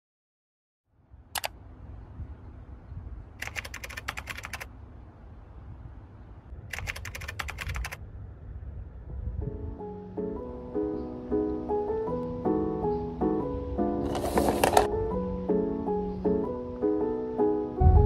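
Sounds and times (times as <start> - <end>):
low steady rumble: 0.9 - 3.5, 4.6 - 10.8
rapid clicking like typing: 3.4 - 4.7, 6.7 - 8.0
piano music: 9.2 - 18.0.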